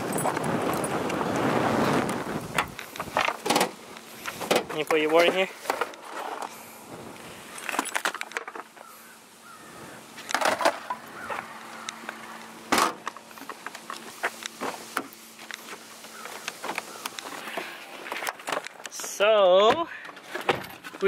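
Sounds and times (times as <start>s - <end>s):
skateboards clattering: 0.0s - 6.5s, 10.2s - 11.6s
faint steady hum: 0.0s - 21.0s.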